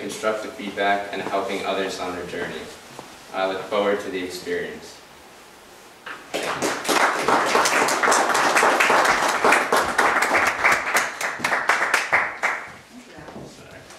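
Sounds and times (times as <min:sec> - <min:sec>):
audience applauding: 0:06.3 - 0:12.7.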